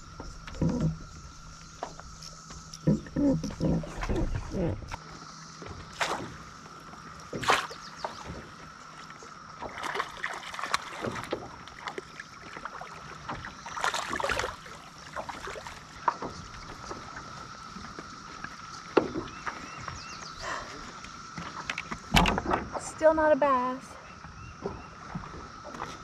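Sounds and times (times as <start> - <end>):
water splashing: 5.6 - 19.7.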